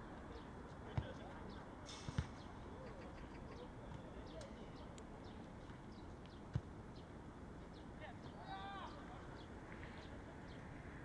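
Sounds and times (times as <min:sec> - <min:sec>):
faint distant voices: 0:00.0 - 0:07.0, 0:07.6 - 0:11.0
small birds chirping: 0:00.2 - 0:10.8
football being kicked: 0:02.1 - 0:02.4, 0:06.5 - 0:06.7.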